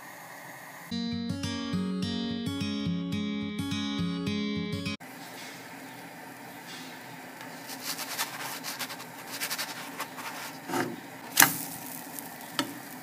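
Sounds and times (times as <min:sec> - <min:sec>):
pancake batter sizzling in pan: 0:07.6 - 0:13.0.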